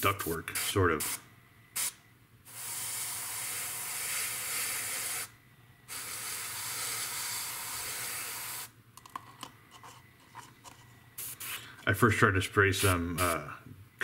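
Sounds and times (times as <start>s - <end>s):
airbrush spraying hiss: 1.8s - 5.3s, 5.9s - 8.7s, 11.2s - 11.6s.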